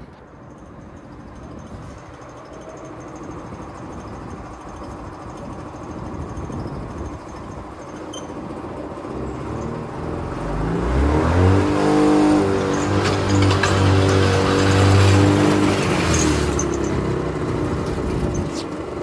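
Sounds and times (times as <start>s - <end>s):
snowmobile engine revving: 9.8s - 17.6s.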